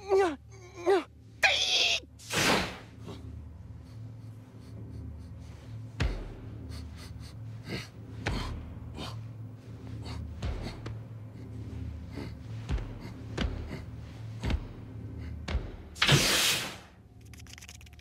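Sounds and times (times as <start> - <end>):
low machine hum: 2.8 - 16.0.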